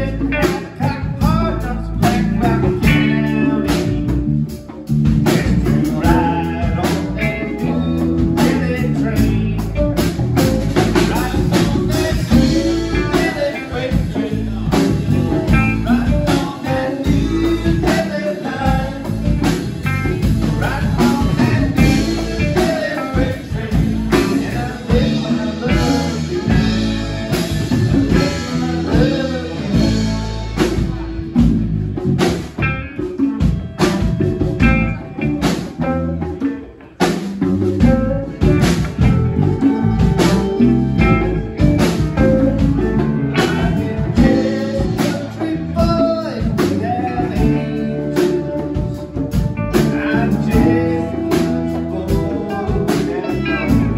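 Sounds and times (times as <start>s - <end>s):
live band playing: 0.0s - 53.9s.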